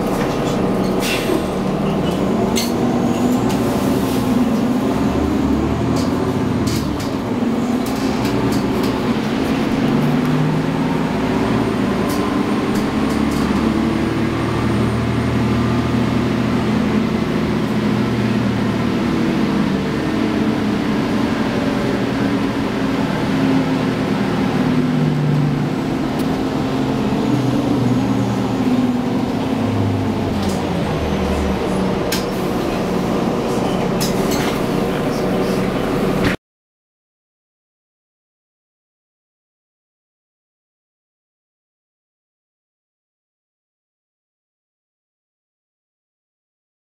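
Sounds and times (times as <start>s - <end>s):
bus diesel engine droning: 0.0s - 36.4s.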